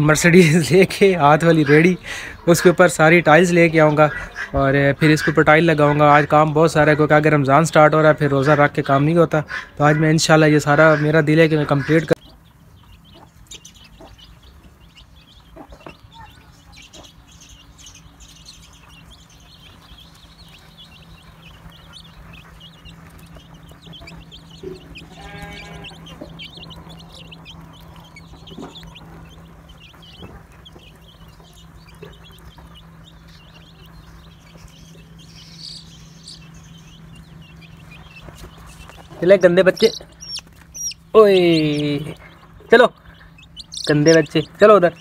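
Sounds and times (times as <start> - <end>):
chicks peeping: 0.0 - 45.0
steady low hum: 11.2 - 45.0
longer animal call: 24.6 - 26.5.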